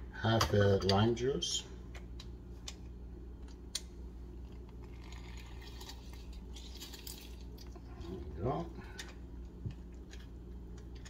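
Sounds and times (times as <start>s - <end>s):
low steady hum: 0.0s - 11.0s
juice trickling into jar: 4.5s - 8.6s.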